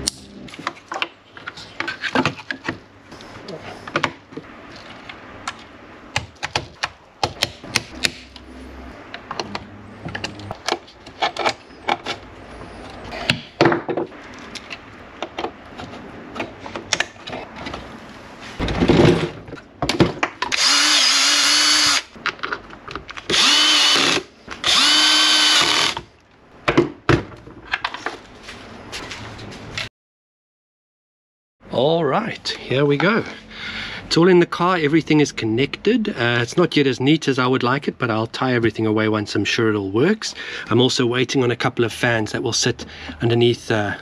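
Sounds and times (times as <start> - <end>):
cordless drill running: 20.5 - 22.1, 23.3 - 26.0.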